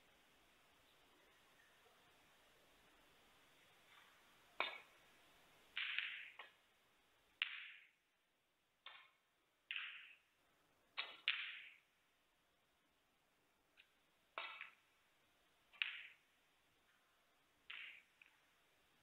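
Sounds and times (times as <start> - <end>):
snooker balls clicking: 3.9 - 6.7, 7.3 - 8.0, 8.8 - 11.9, 13.7 - 15.0, 15.6 - 18.6.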